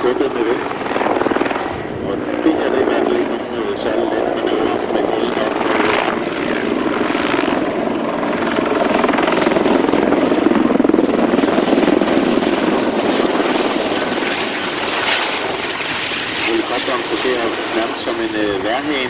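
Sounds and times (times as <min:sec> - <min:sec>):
helicopter rotor and turbine engines: 0:00.0 - 0:19.0.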